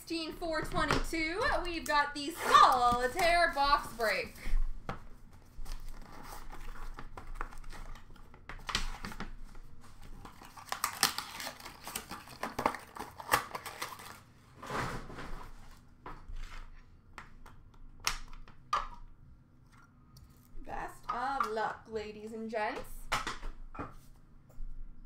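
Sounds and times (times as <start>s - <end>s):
packaging rustling and crinkling: 5.2s - 14.3s.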